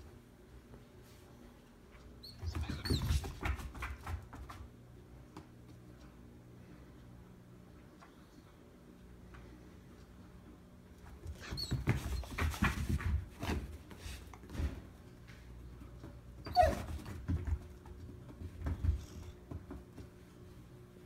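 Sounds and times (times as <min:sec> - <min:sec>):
dog whining: 0:16.4 - 0:17.0.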